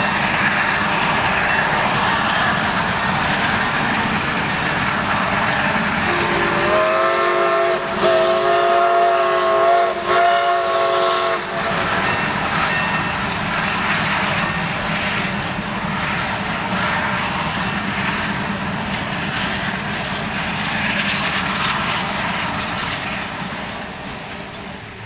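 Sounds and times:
train running: 0.0s - 25.0s
steam locomotive whistle chord: 6.0s - 11.7s.

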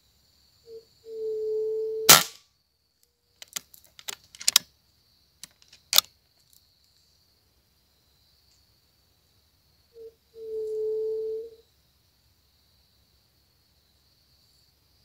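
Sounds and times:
faint high insect drone: 0.0s - 15.0s
sharp clicks and knocks: 3.4s - 4.6s
low held hoot: 10.0s - 11.6s.

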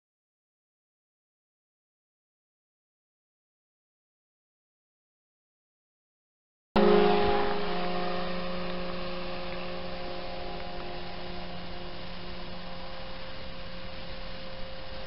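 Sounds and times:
model airplane motors droning: 6.8s - 15.0s.

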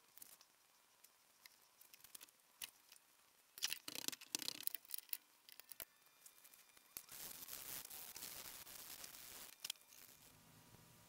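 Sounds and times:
wooden pieces clicking and knocking: 3.6s - 5.9s.

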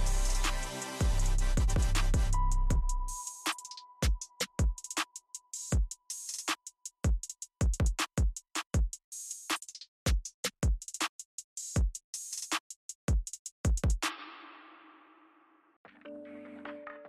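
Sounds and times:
electronic drum machine beat: 0.0s - 9.0s, 13.1s - 14.0s.

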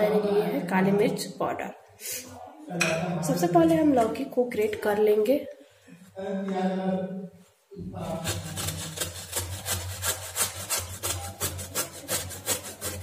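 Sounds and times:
gourd grated on metal grater: 8.1s - 13.0s.

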